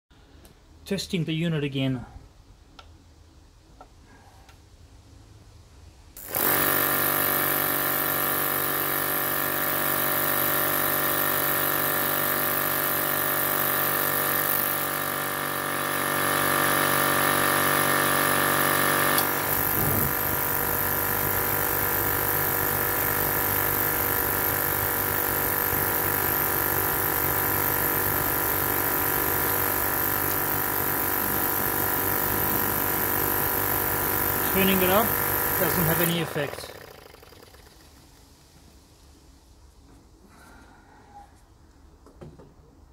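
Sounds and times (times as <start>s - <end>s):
burner blower humming: 6.3s - 37.9s.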